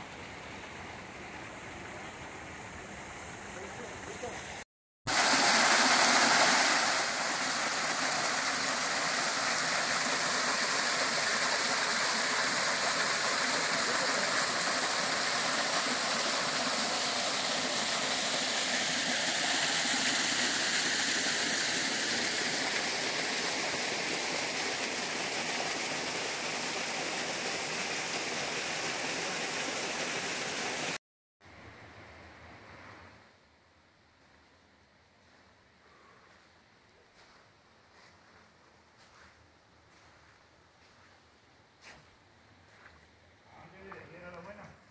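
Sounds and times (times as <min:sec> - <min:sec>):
faint hiss: 0:00.0 - 0:44.9
creek water rushing over boulders: 0:03.9 - 0:31.0.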